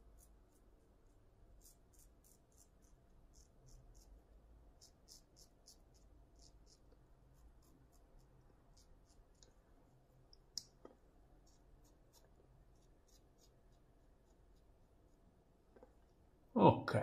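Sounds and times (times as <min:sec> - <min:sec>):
razor scratching through stubble: 0:00.1 - 0:00.7, 0:01.5 - 0:04.2, 0:04.8 - 0:09.4, 0:11.4 - 0:14.8.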